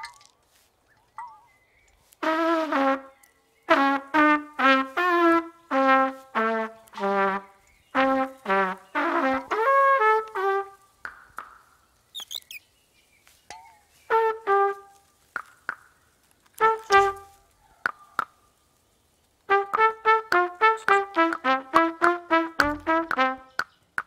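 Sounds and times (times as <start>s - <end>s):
thin high chirps: 0.9s - 2.1s, 12.1s - 12.8s
brass horn halting tune: 2.2s - 10.9s, 14.1s - 15.1s, 16.5s - 17.4s, 19.5s - 23.6s.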